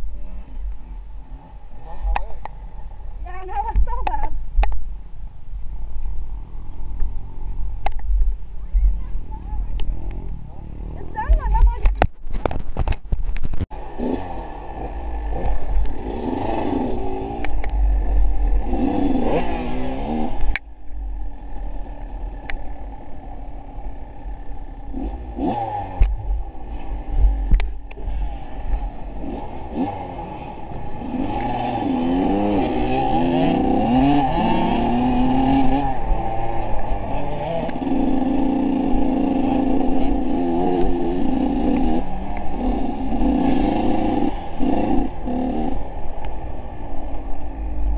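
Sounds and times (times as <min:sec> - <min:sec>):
vehicle engine revving: 0:13.7 - 0:47.9.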